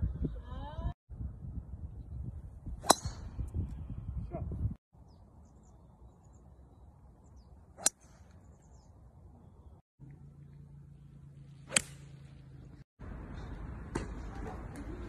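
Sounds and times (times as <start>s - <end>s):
golf club striking ball: 2.8s - 3.3s, 11.6s - 12.2s
low steady hum: 9.4s - 15.0s.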